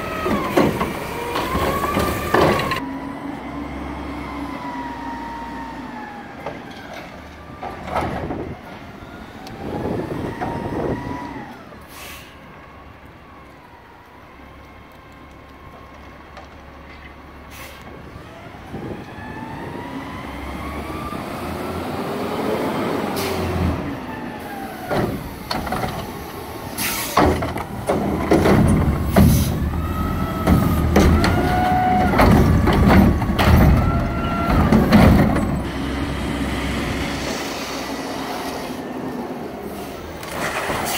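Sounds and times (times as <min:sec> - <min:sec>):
truck engine revving: 0:00.0 - 0:08.6, 0:17.4 - 0:40.9
hydraulics whining: 0:00.0 - 0:40.9.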